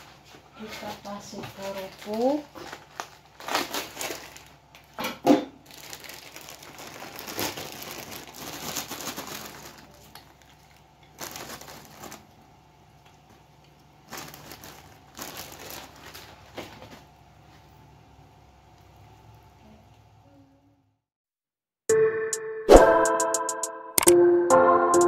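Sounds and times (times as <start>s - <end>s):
plastic bag crinkling: 0.8s - 5.0s, 5.6s - 12.6s, 13.2s - 17.2s.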